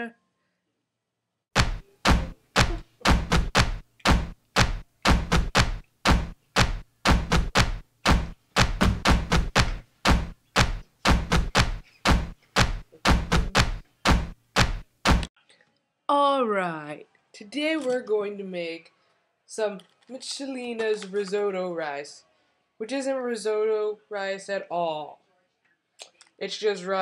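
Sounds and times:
thumping percussion strikes: 1.6s - 15.3s.

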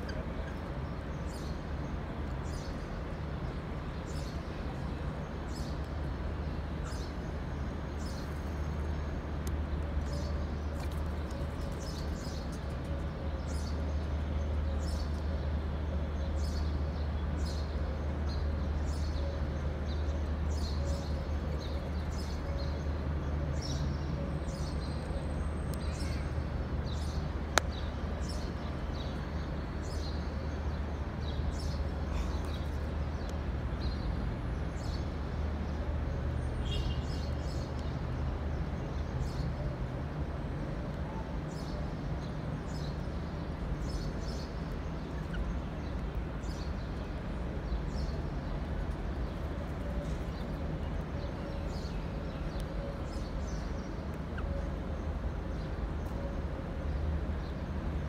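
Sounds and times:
city traffic rumble: 0.0s - 58.0s.

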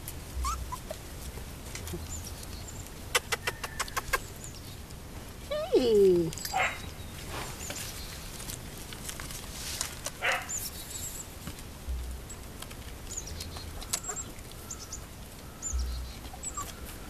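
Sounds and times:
puppies making brief noises: 0.4s - 1.0s, 15.7s - 17.0s
small birds chirping: 0.4s - 17.0s.

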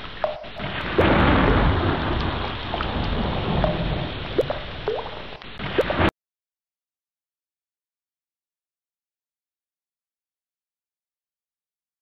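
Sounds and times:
rain falling into water: 0.0s - 6.1s
rolling thunder: 0.5s - 6.1s
drips: 4.4s - 5.2s.

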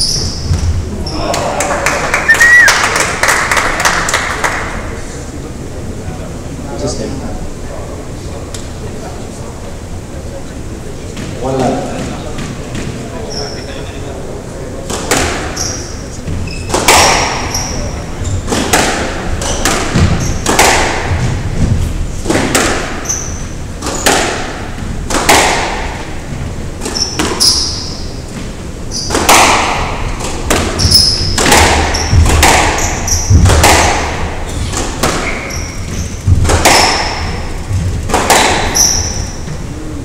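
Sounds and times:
shoes squeaking on wooden floor: 2.3s - 2.7s, 15.5s - 16.8s, 17.4s - 18.5s, 30.8s - 33.5s, 34.4s - 39.7s
squash ball hits: 14.9s - 17.7s, 18.4s - 26.1s, 26.8s - 39.6s.

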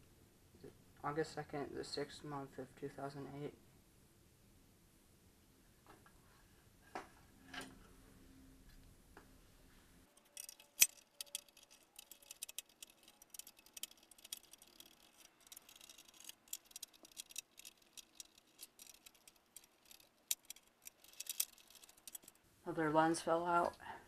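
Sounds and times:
screwdriver metallic clicks: 10.2s - 22.3s.

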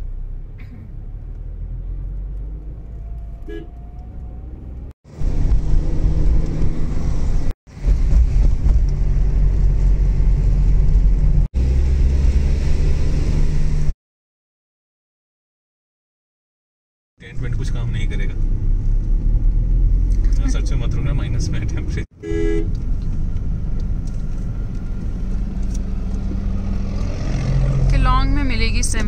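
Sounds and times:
engine and traffic rumble: 0.0s - 13.9s, 17.2s - 29.0s
road and wind noise: 0.0s - 13.9s, 17.2s - 29.0s
car horn toot: 3.5s - 3.8s, 22.2s - 22.7s.

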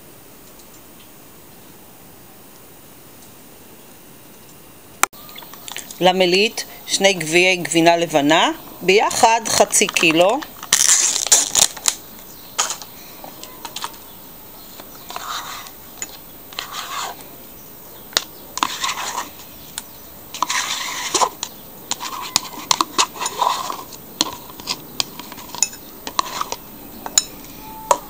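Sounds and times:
spoon scraping plastic tub: 8.9s - 10.9s, 14.8s - 17.3s, 18.6s - 19.5s, 20.3s - 28.0s
spoon clinking on bowl: 27.1s - 28.0s.

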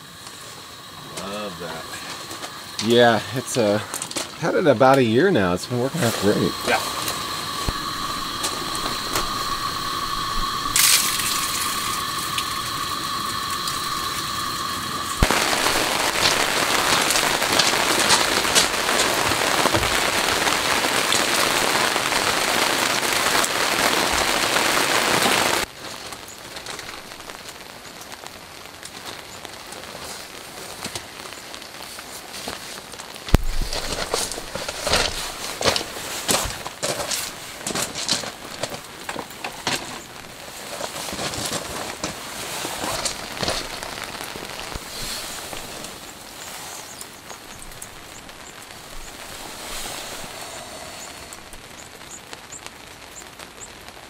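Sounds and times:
rain pattering: 0.0s - 54.0s
steady high tone: 1.1s - 19.8s.

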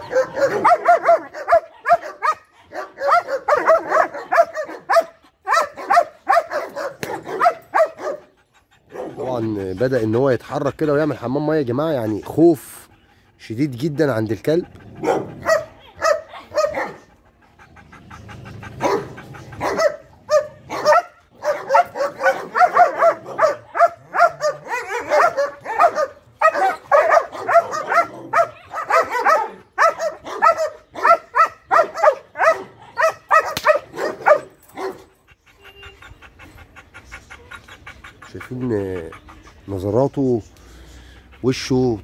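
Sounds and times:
dog barking: 0.0s - 8.3s, 8.9s - 9.3s, 15.0s - 17.1s, 18.8s - 35.1s.

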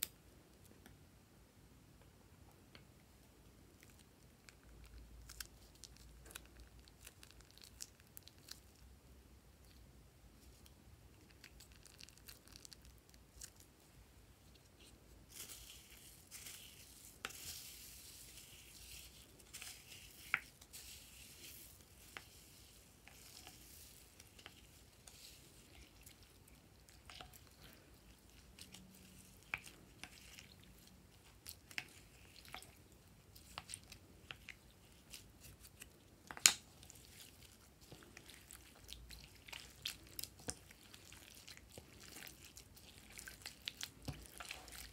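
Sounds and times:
foam beads crackling in slime: 15.3s - 27.5s.

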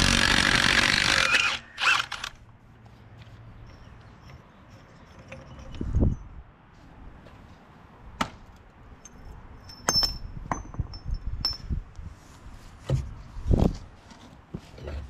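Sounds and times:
metal clinks and knocks: 3.6s - 6.4s, 9.0s - 11.8s.

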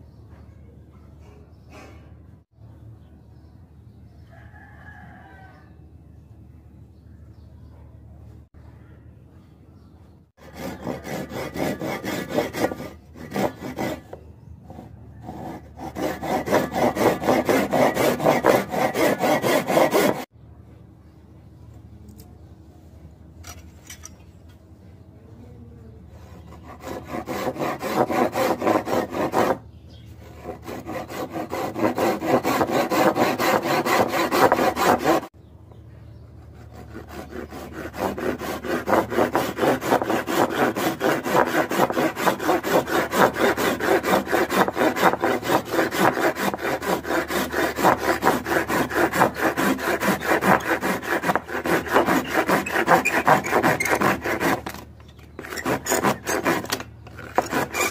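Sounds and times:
hand saw cutting wood: 10.4s - 20.3s, 26.2s - 29.6s, 30.2s - 35.3s, 36.4s - 57.9s.

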